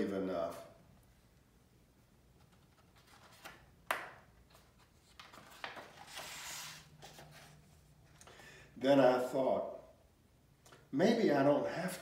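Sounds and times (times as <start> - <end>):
page turning rustle: 2.4 - 7.6.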